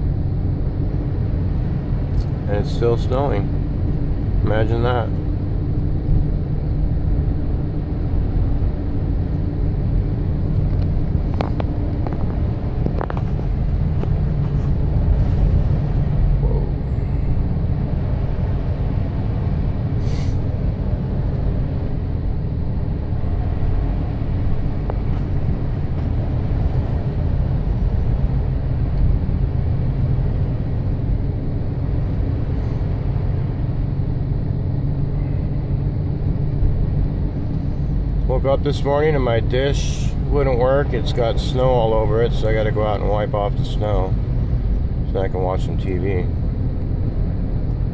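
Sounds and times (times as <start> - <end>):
road and engine drone in cabin: 0.0 - 47.9.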